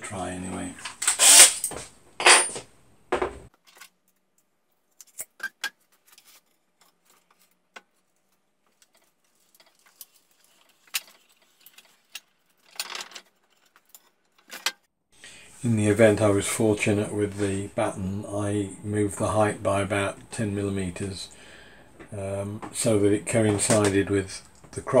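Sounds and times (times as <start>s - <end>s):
metal hardware clinking on wood: 0.8s - 2.6s.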